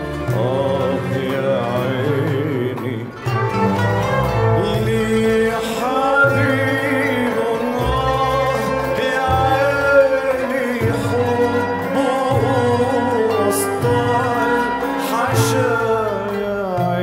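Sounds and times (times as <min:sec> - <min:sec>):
man singing: 0:00.0 - 0:17.0
violins: 0:00.0 - 0:17.0
flutes: 0:03.1 - 0:17.0.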